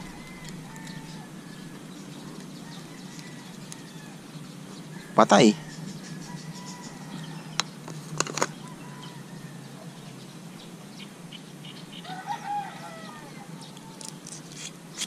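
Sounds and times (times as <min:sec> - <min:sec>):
chicken calling: 0:00.0 - 0:04.3, 0:12.0 - 0:14.1
steady low hum: 0:00.0 - 0:12.0.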